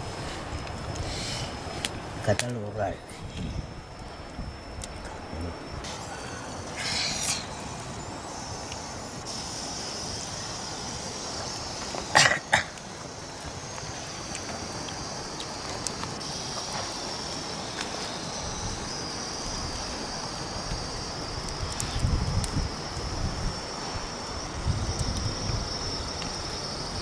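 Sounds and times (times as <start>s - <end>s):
steady high-pitched hiss: 0.0s - 27.0s.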